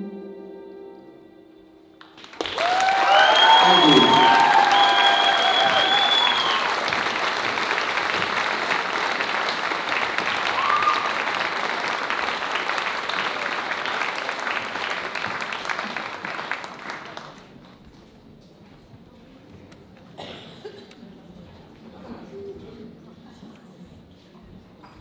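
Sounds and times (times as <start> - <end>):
audience applauding: 2.0 - 17.7.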